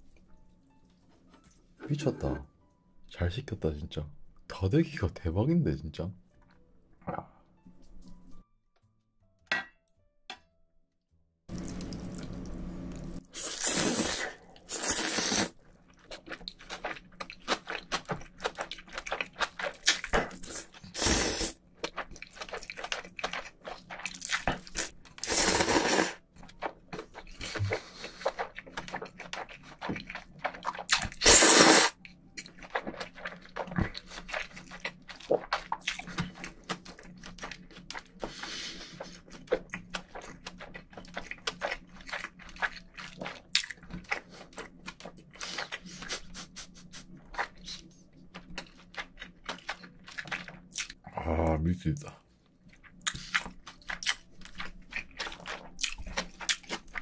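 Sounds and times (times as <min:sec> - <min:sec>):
noodle slurping: 0:13.3 - 0:15.6, 0:16.3 - 0:32.0
wet chewing clicks: 0:15.0 - 0:20.9, 0:21.6 - 0:51.0, 0:52.6 - 0:57.0.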